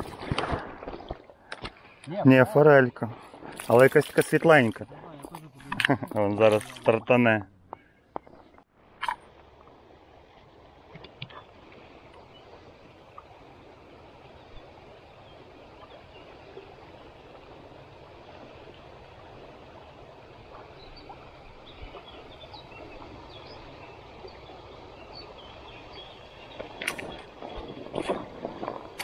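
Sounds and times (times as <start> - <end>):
river flowing over stones: 8.8 - 29.0.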